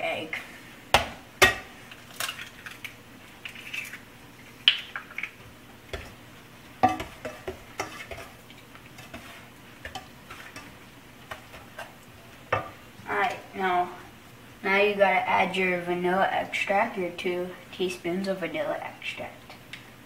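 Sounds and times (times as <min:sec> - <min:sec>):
wooden spoon scraping saucepan: 0:06.8 - 0:12.0.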